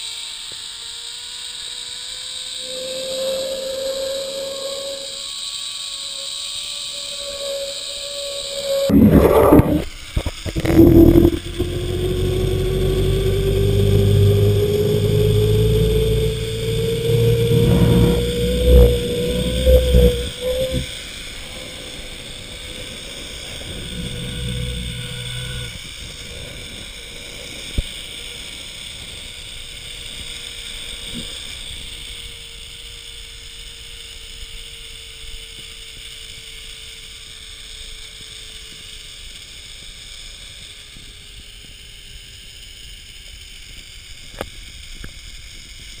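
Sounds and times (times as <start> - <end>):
zipline pulley whirring on cable: 0.0 - 46.0
steady hiss: 2.4 - 31.6
wind rumbling on microphone: 8.5 - 29.3.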